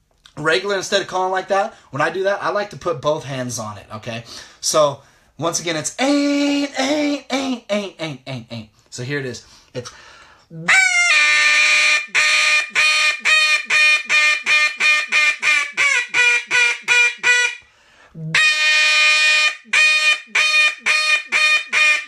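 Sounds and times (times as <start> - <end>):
duck call hail call: 10.7 - 17.6, 18.3 - 22.0.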